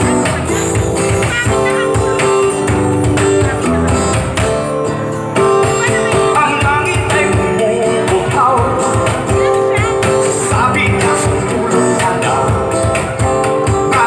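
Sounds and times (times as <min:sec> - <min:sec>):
woman singing: 0:00.0 - 0:02.3, 0:05.7 - 0:11.2
acoustic guitar picking and strumming: 0:00.0 - 0:14.0
cajon beats: 0:00.0 - 0:14.0.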